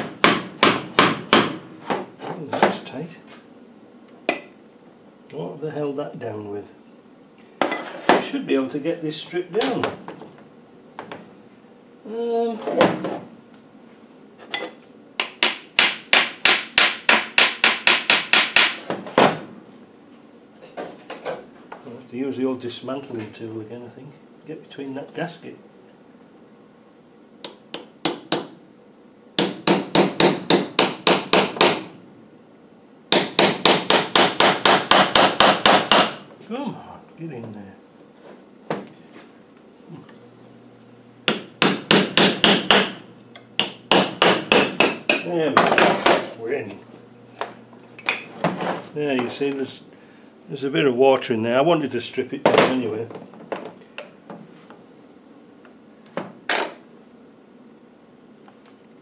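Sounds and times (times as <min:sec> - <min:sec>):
hammer striking metal tool: 0:43.6 - 0:46.3.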